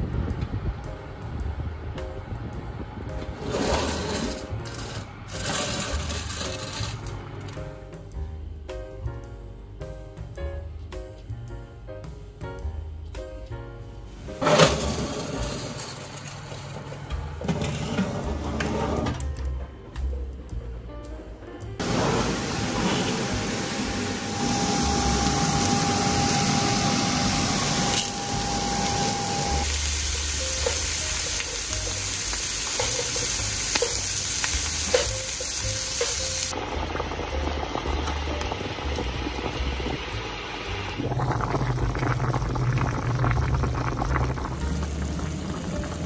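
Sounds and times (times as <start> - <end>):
light background music: 0.1 - 41.2, 43.5 - 46.0
food sizzling in a pan: 21.8 - 46.0
pot bubbling: 21.8 - 46.0.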